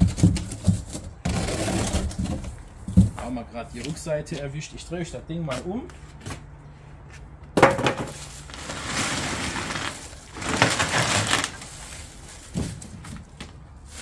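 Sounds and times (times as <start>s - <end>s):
trolley scraping on concrete floor: 0.0s - 2.5s, 7.8s - 14.0s
plastic film crinkling: 8.1s - 14.0s.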